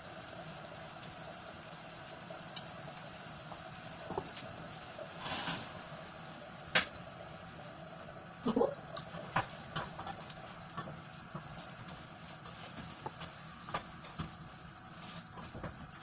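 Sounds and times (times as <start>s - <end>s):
short hiss: 5.2s - 5.8s.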